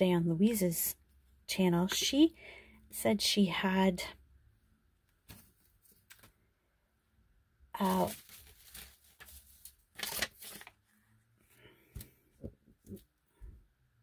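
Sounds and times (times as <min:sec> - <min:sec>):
paper rustling and scraping: 0:07.8 - 0:11.0.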